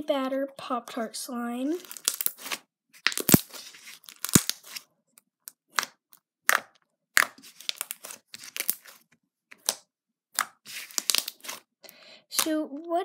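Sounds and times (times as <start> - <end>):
slime popping and crackling: 1.8 - 4.8, 5.5 - 9.0, 10.4 - 11.7.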